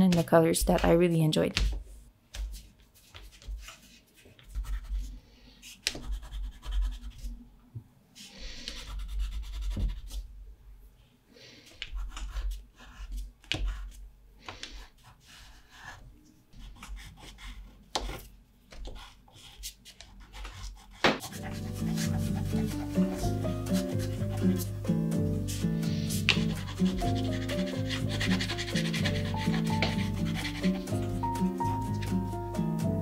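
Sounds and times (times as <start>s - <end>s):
crayon scribbling on paper: 4.5s - 7.3s, 8.5s - 10.2s, 11.7s - 14.0s, 14.6s - 16.0s, 16.6s - 32.3s.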